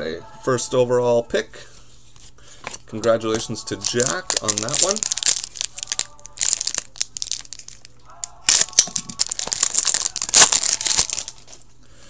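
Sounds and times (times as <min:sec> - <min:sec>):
foil card wrapper crinkling and tearing: 0:03.3 - 0:11.6.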